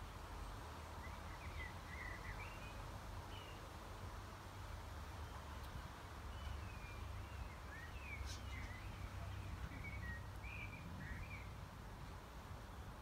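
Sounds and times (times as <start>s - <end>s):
songbird twittering: 1.0s - 3.6s, 6.3s - 11.6s.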